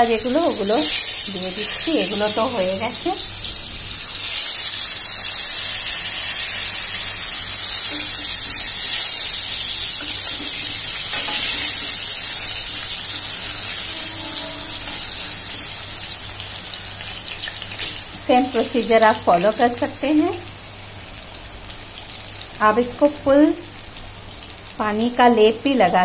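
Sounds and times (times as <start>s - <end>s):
food sizzling in hot oil: 0.0s - 26.0s.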